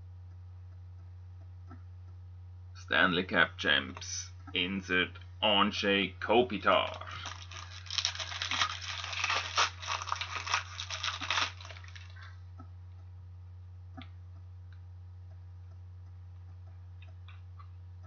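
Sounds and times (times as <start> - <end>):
low steady hum: 0.0 - 18.0
plastic crinkling: 6.8 - 12.4.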